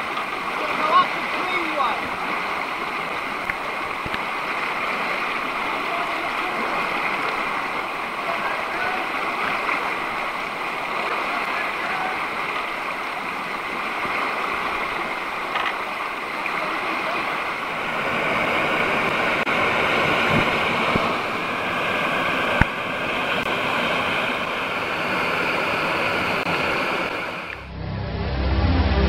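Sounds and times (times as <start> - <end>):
water rushing over rocks: 0.0 - 27.7.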